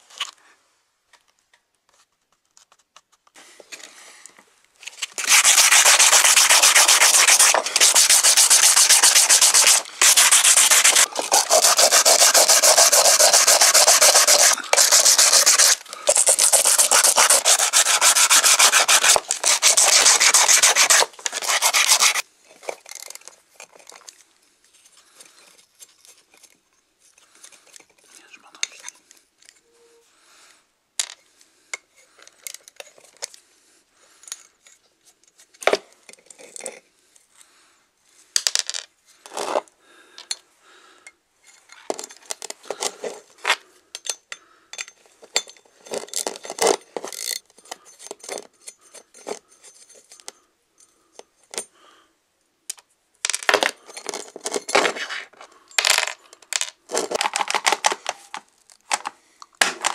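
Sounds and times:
ratchet wrench working: 5.2s - 22.2s.

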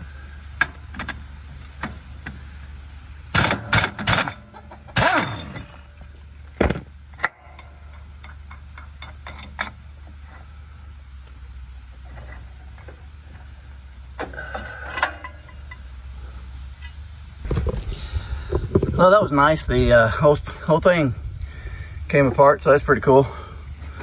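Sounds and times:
steady low hum: 0.0s - 24.0s
air impact wrench burst: 5.0s - 5.7s.

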